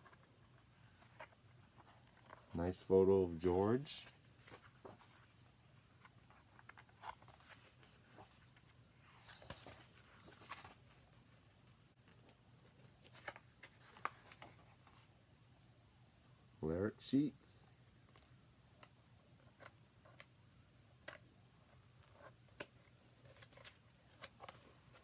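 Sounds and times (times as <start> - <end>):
book pages turning: 0.0 - 11.2, 12.0 - 15.1, 21.0 - 25.0.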